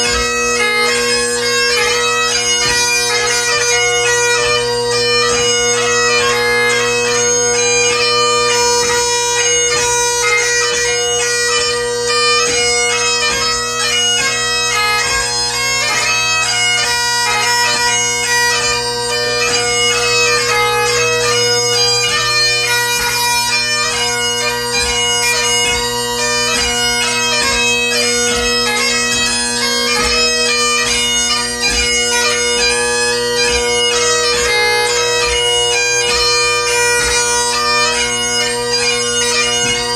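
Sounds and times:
bagpipe chanter melody: 0:00.0 - 0:39.9
bagpipe drones: 0:00.0 - 0:39.9.

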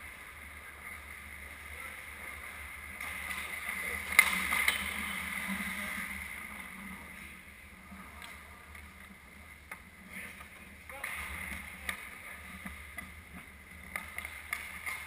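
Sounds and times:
skate blades scraping ice: 0:00.0 - 0:15.0.

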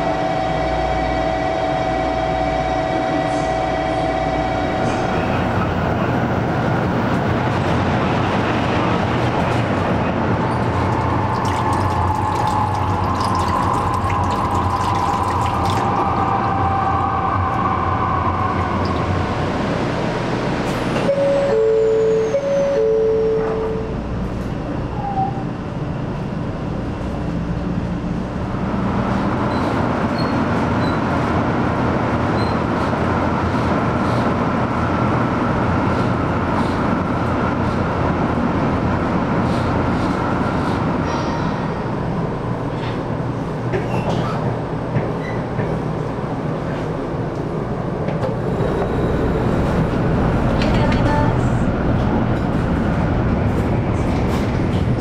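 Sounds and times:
train running noise: 0:00.0 - 0:55.0
two-note tone: 0:21.1 - 0:23.9.

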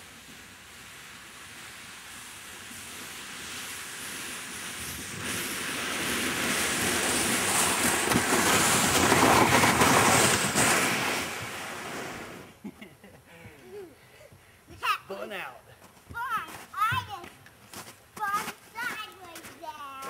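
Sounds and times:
kayak hull scraping over snow: 0:00.0 - 0:12.6.

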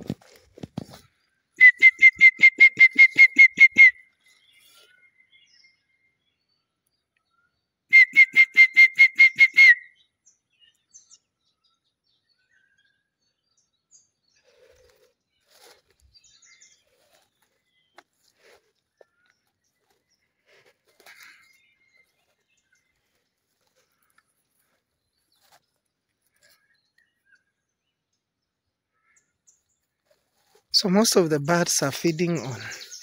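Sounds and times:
person whistling short high notes: 0:01.6 - 0:04.0, 0:08.0 - 0:09.8.

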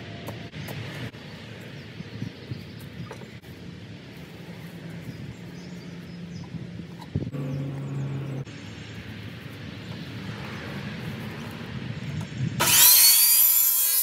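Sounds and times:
miter saw cutting: 0:12.6 - 0:14.0.

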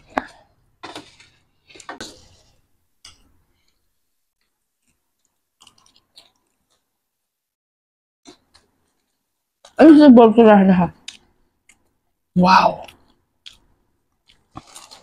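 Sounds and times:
person chewing crisp snacks: 0:04.8 - 0:06.8, 0:12.8 - 0:15.0.

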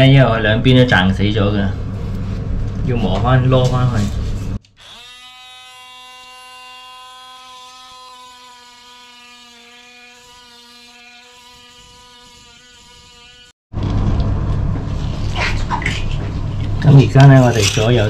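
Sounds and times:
electric grinder whining: 0:04.7 - 0:13.6.

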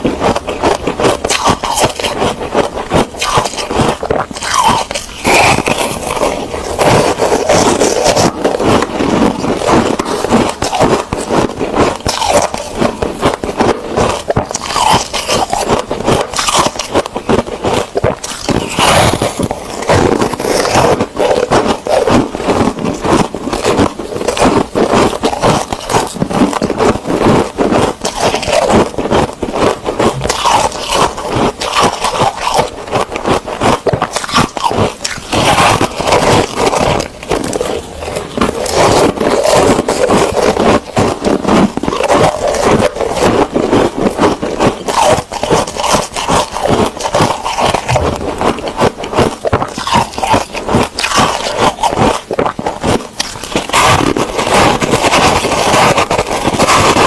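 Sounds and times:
ice crunching being chewed: 0:00.0 - 0:57.0.

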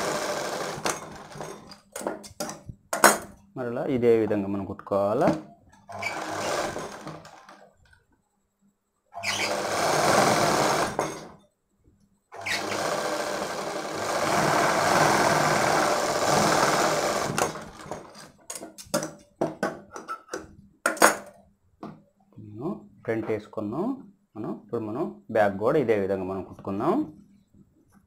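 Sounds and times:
sewing machine stitching: 0:00.0 - 0:01.8, 0:05.9 - 0:07.6, 0:09.2 - 0:11.4, 0:12.4 - 0:18.4.

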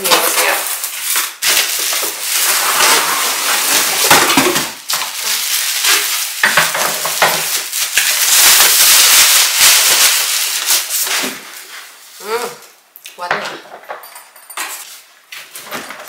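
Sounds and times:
plastic wrap crinkling: 0:00.0 - 0:12.8.

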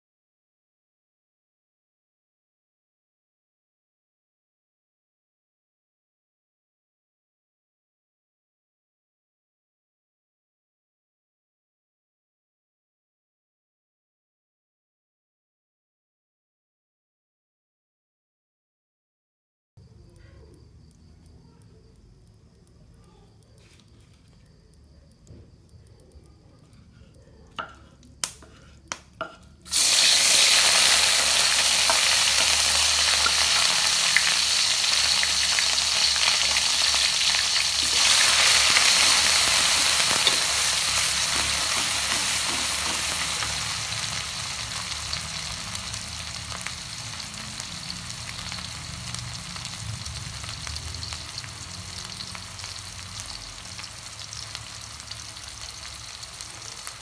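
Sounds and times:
food sizzling in hot oil: 0:24.6 - 0:57.0
spatula stirring in wok: 0:26.6 - 0:49.5.

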